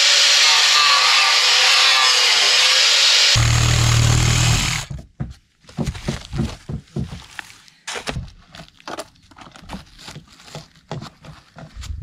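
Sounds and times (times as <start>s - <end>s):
jigsaw cutting wood: 0.0s - 5.0s.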